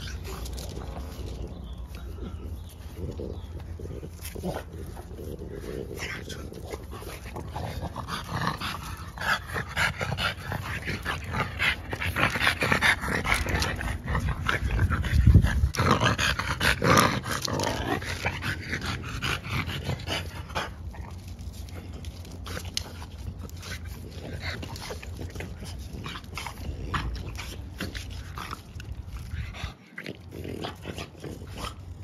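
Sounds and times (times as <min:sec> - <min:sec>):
puppies vocalizing: 0:00.0 - 0:15.8.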